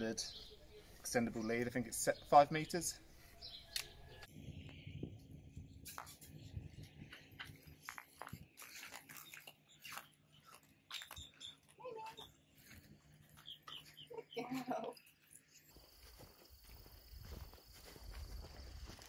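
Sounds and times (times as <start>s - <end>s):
footsteps on gravel: 7.2s - 14.1s, 15.7s - 19.0s.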